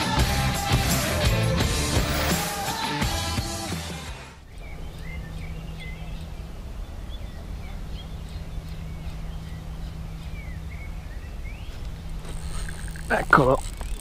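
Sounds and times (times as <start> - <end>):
birds chirping: 4.4 - 14.0
steady low rumble: 4.4 - 14.0.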